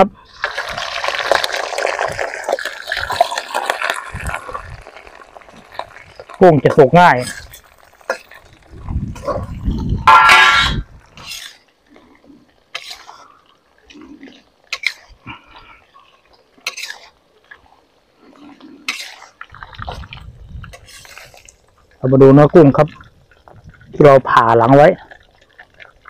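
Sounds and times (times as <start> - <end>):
frying oil sizzling: 0.3 - 11.6
metal spatula scraping a wok: 10.0 - 11.6, 12.7 - 13.2, 16.6 - 17.1, 18.8 - 19.3, 20.7 - 21.3.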